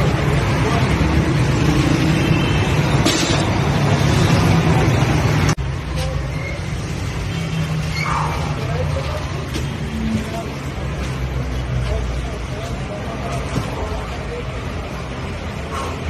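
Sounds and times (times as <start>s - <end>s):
low rumble of traffic: 0.0s - 16.0s
people's voices: 7.4s - 16.0s.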